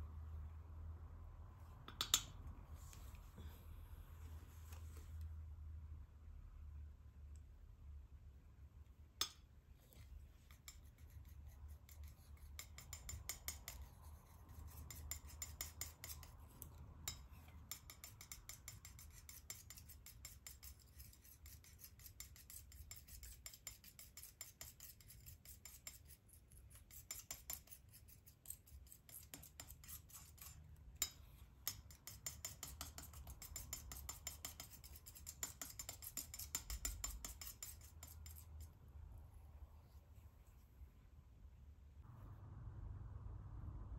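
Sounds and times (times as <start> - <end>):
palette knife scraping paint: 10.0 - 38.8.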